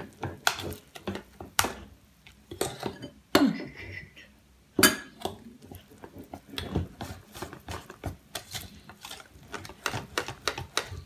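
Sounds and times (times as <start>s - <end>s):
whisk beating in metal bowl: 5.6s - 11.0s.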